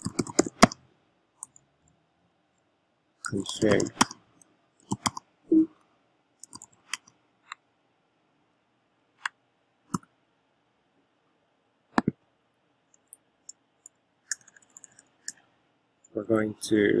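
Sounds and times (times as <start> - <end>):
keyboard and mouse clicks: 0.0 - 0.8, 3.2 - 4.2, 4.8 - 5.2, 6.4 - 7.6, 11.9 - 12.2, 12.9 - 15.4.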